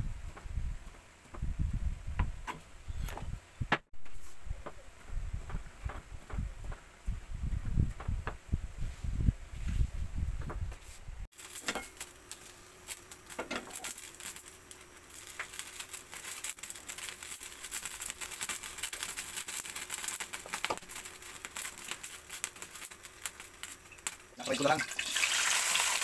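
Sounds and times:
oil crackling in frying pan: 0:11.3 - 0:26.0.

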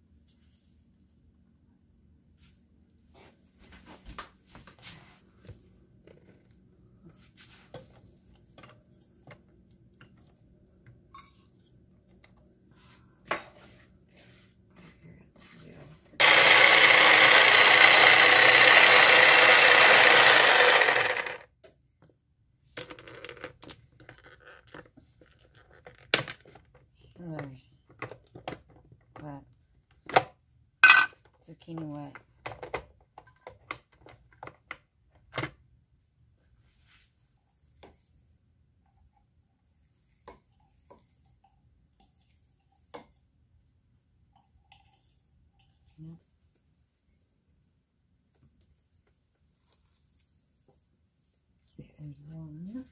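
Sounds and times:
electric food chopper running: 0:16.2 - 0:21.5.

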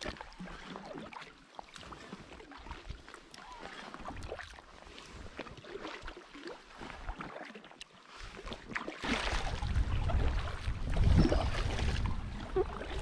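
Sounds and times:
paddle splashing in water: 0:00.0 - 0:13.0
rushing river current: 0:00.0 - 0:13.0
wind on microphone: 0:09.0 - 0:13.0.

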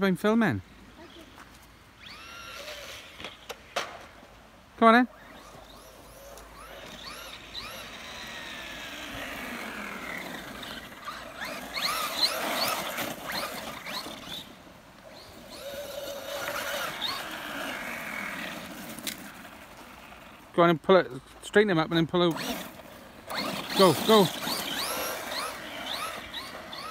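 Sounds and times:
electric motor whining: 0:02.0 - 0:03.5, 0:05.1 - 0:20.4, 0:22.3 - 0:26.9.

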